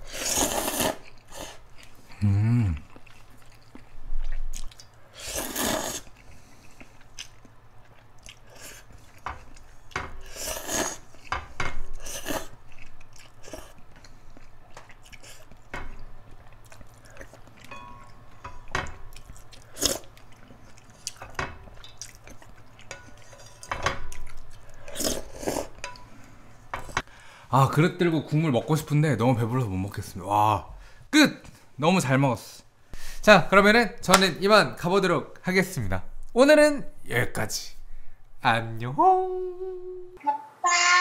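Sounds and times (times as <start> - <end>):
slurping noodles: 0.0 - 1.6, 5.1 - 6.2
chewing: 0.3 - 26.1.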